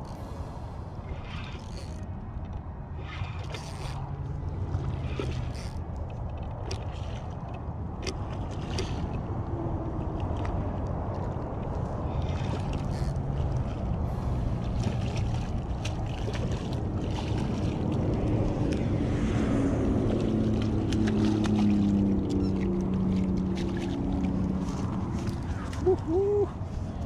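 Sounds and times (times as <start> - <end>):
fish splashing in shallow water: 0.0 - 27.0
steady low drone: 9.2 - 27.0.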